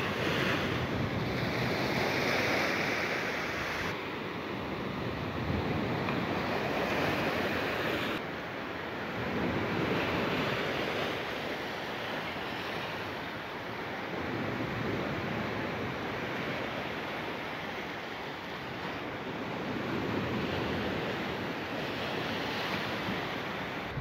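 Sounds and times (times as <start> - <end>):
wind buffeting microphone: 0.0 - 8.2, 19.4 - 24.0
sea surf washing: 0.0 - 24.0.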